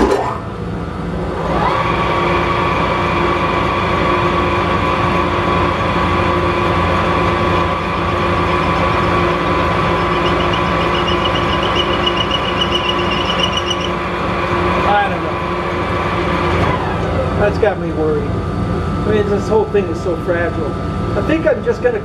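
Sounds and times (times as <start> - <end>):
metal lathe whining: 1.7 - 17.4
rapid high-pitched ticking: 9.9 - 13.9.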